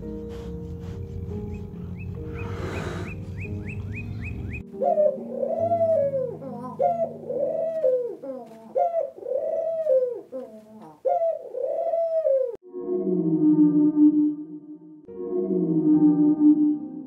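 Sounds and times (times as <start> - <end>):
pigeons cooing: 1.1 - 12.6.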